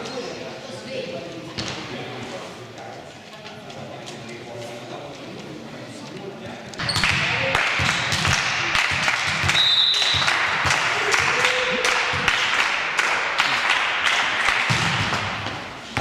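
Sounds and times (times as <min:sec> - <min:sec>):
basketball bouncing on court: 0:14.7 - 0:16.0.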